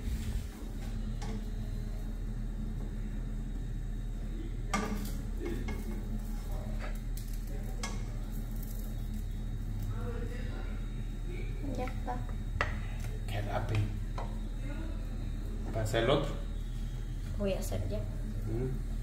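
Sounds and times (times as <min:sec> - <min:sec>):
pancake frying: 0:00.0 - 0:19.0
steady low hum: 0:00.0 - 0:19.0
spatula scraping and tapping pan: 0:04.7 - 0:07.0.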